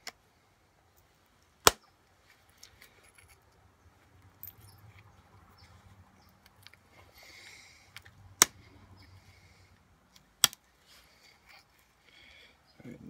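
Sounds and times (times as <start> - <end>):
stone flake snapping click: 10.4 - 10.6.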